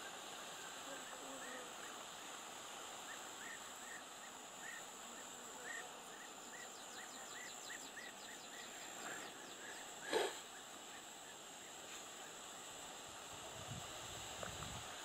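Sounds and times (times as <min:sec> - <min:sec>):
steady high hiss: 0:00.0 - 0:15.0
bird chirping: 0:03.1 - 0:11.4.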